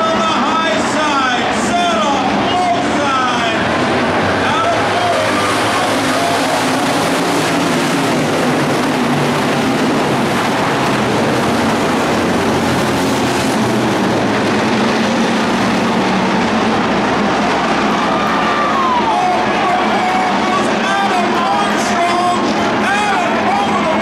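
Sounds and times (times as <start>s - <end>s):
race car engines roaring: 0.0s - 24.0s.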